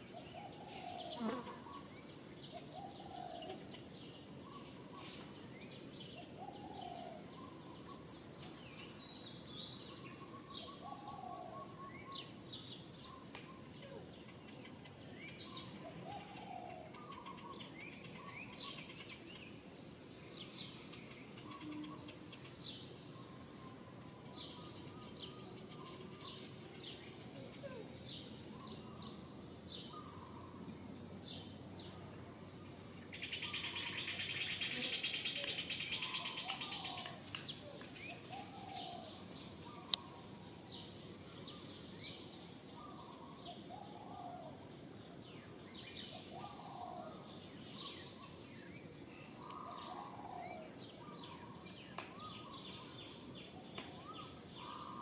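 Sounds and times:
insect buzzing: 0.6s - 1.9s.

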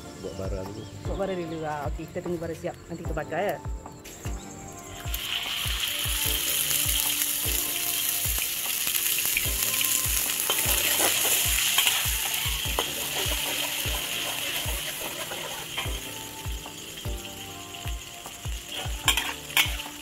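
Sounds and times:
background music with low beat: 0.0s - 20.0s
food sizzling in hot oil: 4.8s - 20.0s.

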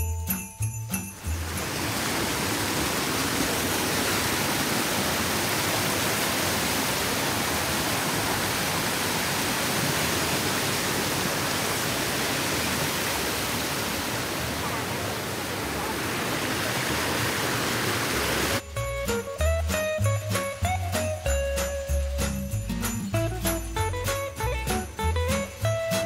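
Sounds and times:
stream rushing over rocks: 1.2s - 18.7s.

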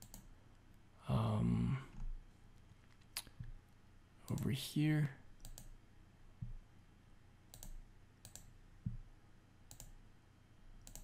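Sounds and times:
computer mouse clicks: 0.0s - 0.3s, 5.4s - 5.8s, 7.5s - 9.0s, 9.7s - 10.0s, 10.8s - 11.0s.

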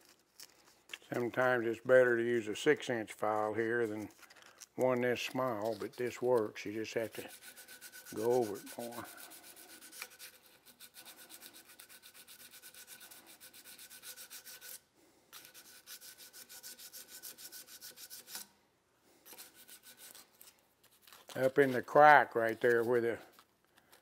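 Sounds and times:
hand file rubbing on steel: 4.8s - 18.5s, 19.2s - 20.6s, 21.4s - 23.4s.

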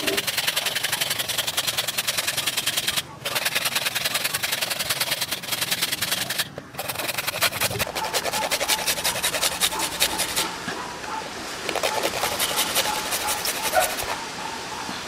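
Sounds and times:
carrot grated on metal grater: 0.0s - 10.5s, 11.7s - 14.2s.

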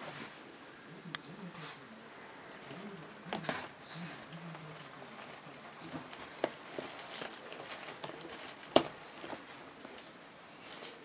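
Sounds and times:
rubber garment rustling: 2.5s - 11.0s.

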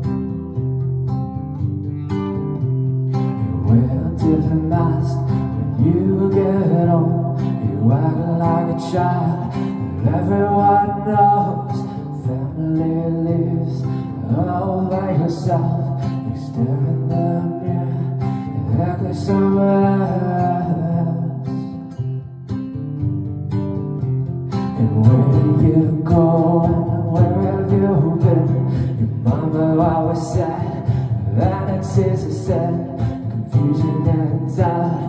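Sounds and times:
classical guitar strumming: 0.0s - 35.0s
man singing: 3.4s - 22.0s, 24.6s - 35.0s.

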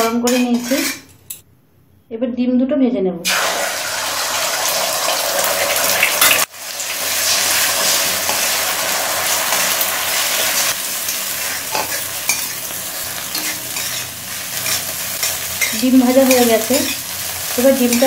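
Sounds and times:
metal spatula scraping: 0.0s - 1.4s, 7.2s - 18.0s
eggs sizzling in oil: 3.3s - 18.0s.

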